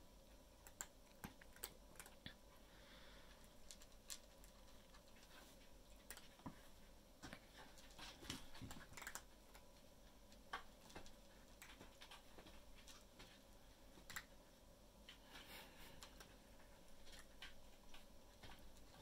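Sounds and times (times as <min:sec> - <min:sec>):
cat paws and claws on wooden floor: 0:03.4 - 0:14.4, 0:15.0 - 0:19.0.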